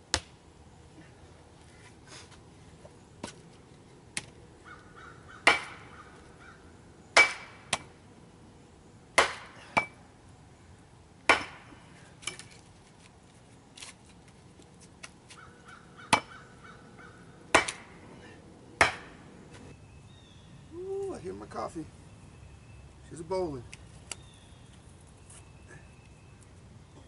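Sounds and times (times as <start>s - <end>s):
axe chopping wood: 0.1s - 0.4s, 5.4s - 5.9s, 7.2s - 7.9s, 9.1s - 10.0s, 11.2s - 12.5s, 17.5s - 18.0s, 18.8s - 19.2s.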